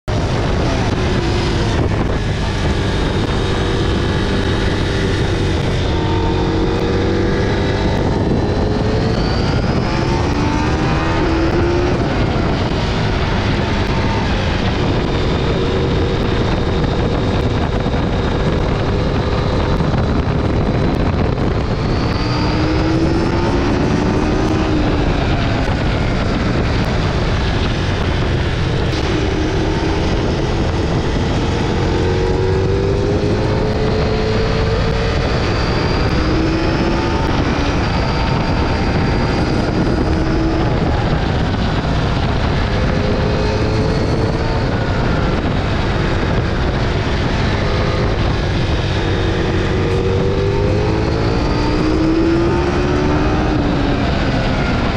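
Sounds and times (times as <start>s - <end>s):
motorcycle engine accelerating: 0.0s - 54.9s
wind and road noise: 0.0s - 54.9s.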